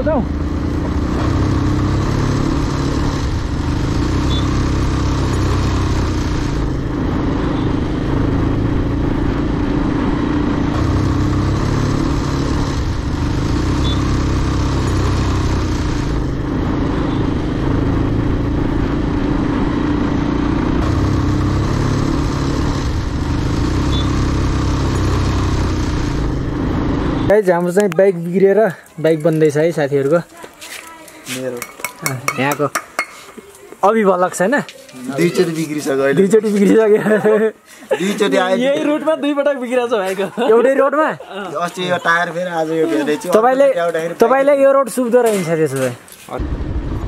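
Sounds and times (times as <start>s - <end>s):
motorcycle engine running: 0.0s - 27.3s
rushing wind noise: 46.4s - 47.0s.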